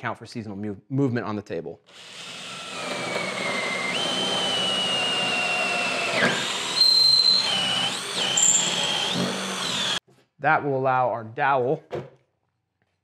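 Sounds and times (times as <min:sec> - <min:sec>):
cordless drill whining: 0:01.9 - 0:10.0.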